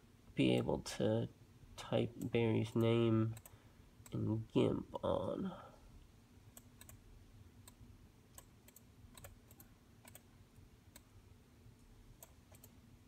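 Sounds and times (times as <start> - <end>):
faint low hum: 0.0 - 13.0
computer key clicks: 8.4 - 10.3.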